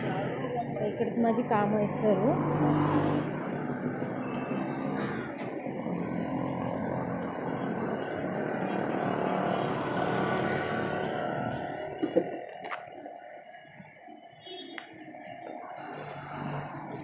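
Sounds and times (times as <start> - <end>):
road traffic noise: 0.0 - 17.0.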